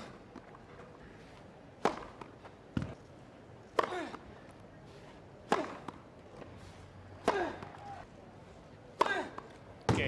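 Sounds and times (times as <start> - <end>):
racket striking tennis ball: 1.8 - 3.0, 5.4 - 6.0, 7.2 - 7.8.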